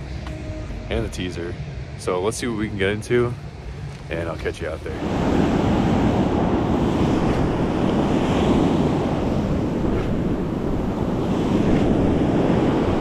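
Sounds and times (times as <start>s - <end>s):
surf breaking on beach: 5.0s - 13.0s
wind buffeting microphone: 5.0s - 13.0s.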